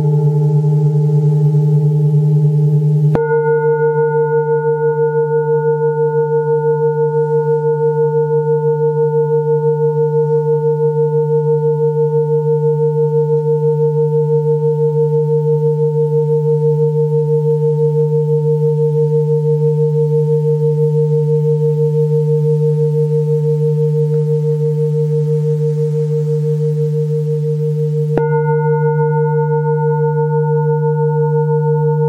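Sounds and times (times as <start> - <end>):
singing bowl ringing: 0.0 - 32.0
mallet striking singing bowl: 3.1 - 4.8, 28.1 - 30.8.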